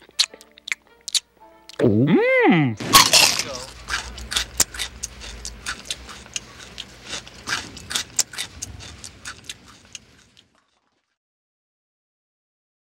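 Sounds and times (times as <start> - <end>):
faint low hum: 1.8 - 10.9
dishes and cutlery clinking: 2.8 - 9.7.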